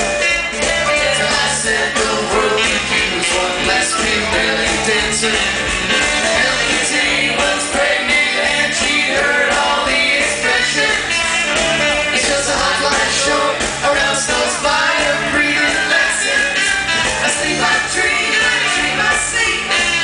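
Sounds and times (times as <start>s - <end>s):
drums and cymbals: 0.0s - 20.0s
lead vocals: 0.2s - 20.0s
women's backing vocals: 6.3s - 11.1s.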